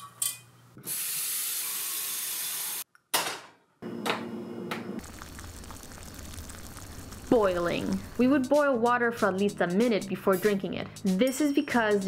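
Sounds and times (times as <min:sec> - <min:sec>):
faucet running water: 0:05.0 - 0:08.4.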